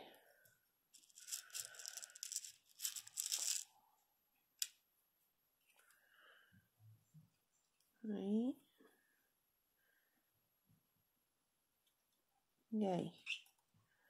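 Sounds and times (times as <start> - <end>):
beads rattling in plastic box: 0.9 - 3.6.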